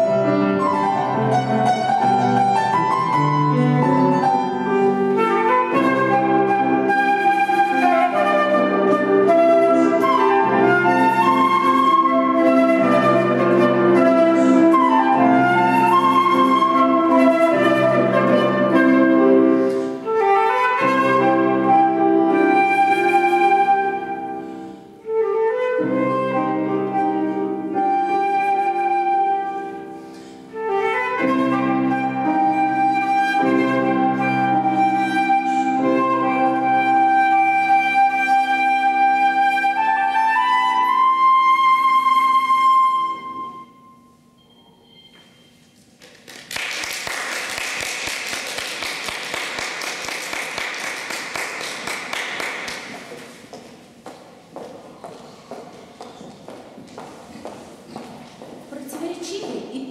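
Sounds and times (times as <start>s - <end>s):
flute: 0.0s - 45.9s
piano: 0.0s - 59.9s.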